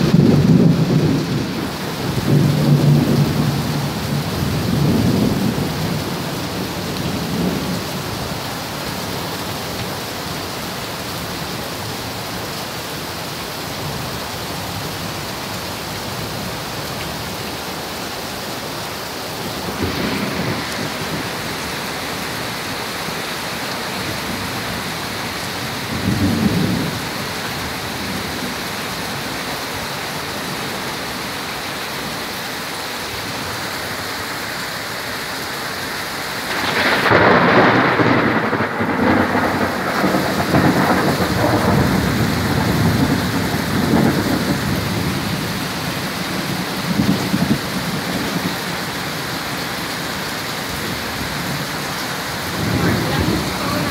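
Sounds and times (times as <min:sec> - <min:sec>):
thunder rumbling: 0:00.0 - 0:07.9, 0:19.4 - 0:28.6, 0:36.4 - 0:48.9, 0:50.7 - 0:53.9
steady rain: 0:00.0 - 0:53.9.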